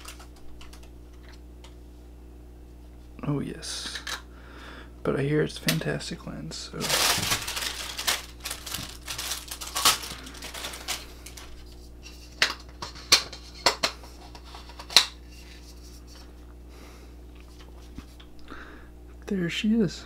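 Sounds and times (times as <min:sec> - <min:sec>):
plastic wrapping crinkling: 0:00.0 - 0:01.4, 0:06.8 - 0:12.7.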